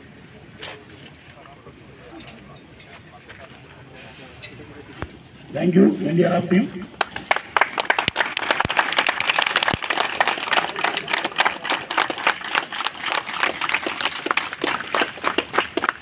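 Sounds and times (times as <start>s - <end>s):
crowd applauding: 6.9s - 16.0s.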